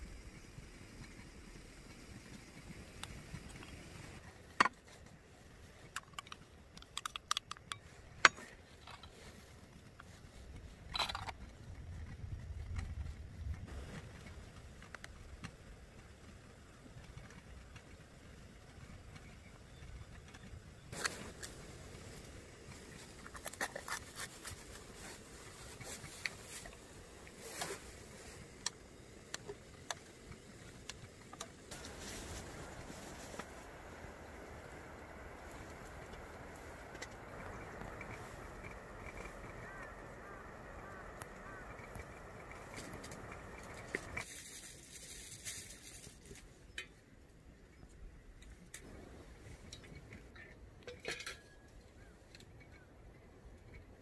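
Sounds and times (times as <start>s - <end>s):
objects clicking and tapping: 5.8s - 9.4s.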